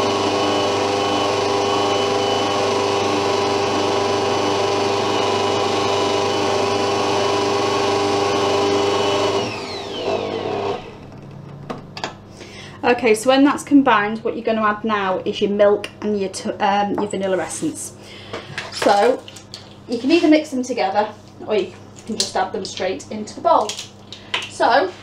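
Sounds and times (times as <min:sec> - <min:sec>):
stand mixer motor whining: 0:00.0 - 0:11.2.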